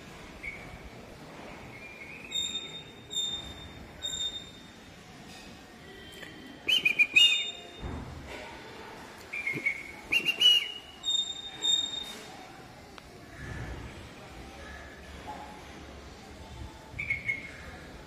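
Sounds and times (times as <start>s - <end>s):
bird calling whistled notes: 1.8s - 4.6s, 6.6s - 7.7s, 9.3s - 12.0s.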